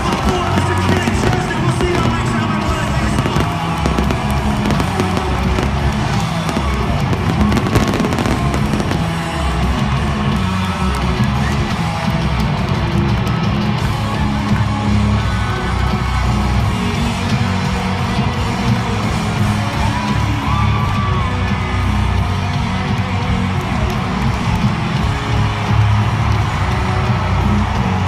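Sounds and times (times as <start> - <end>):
fireworks crackling and popping: 0.0 - 10.5
country-rock band music over pa: 0.0 - 28.0.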